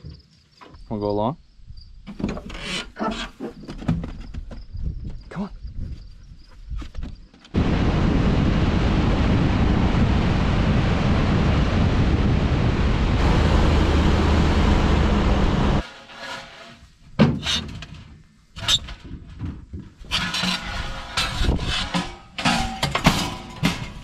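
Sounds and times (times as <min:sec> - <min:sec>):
road rumble: 0:07.6 - 0:15.8
wind rush: 0:07.6 - 0:15.8
metal clanks and scrapes: 0:15.8 - 0:24.0.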